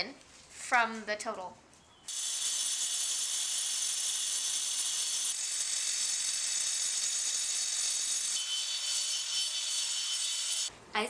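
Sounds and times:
angle grinder cutting brick: 0:02.1 - 0:10.7.

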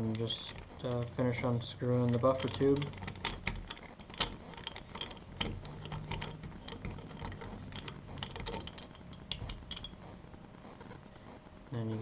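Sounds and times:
metal tube unscrewing clicks: 0:02.0 - 0:10.0.

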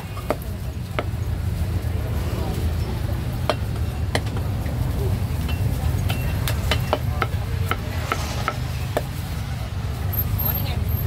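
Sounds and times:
cleaver chopping on wooden block: 0:06.1 - 0:09.1.

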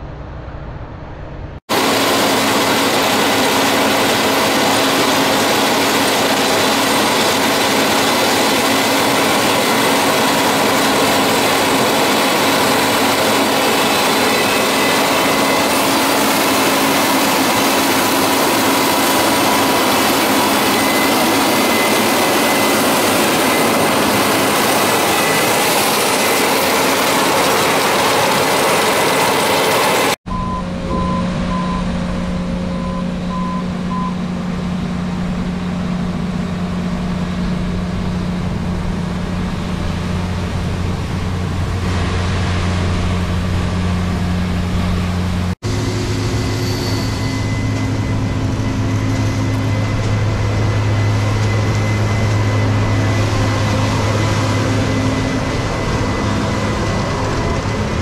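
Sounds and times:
combine harvester machinery rushing: 0:00.0 - 0:58.0
low engine hum: 0:00.0 - 0:58.0
evenly spaced beeps: 0:19.0 - 0:31.9.

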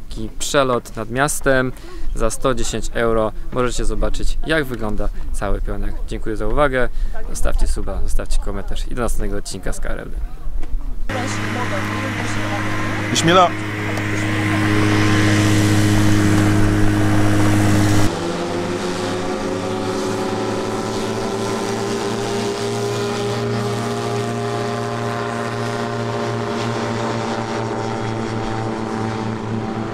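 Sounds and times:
microlight propeller engine running: 0:11.1 - 0:29.9.

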